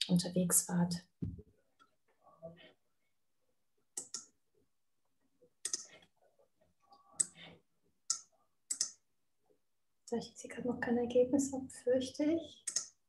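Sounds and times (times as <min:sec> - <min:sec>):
computer mouse clicks: 0:04.0 - 0:04.4, 0:08.1 - 0:09.0, 0:12.6 - 0:13.0.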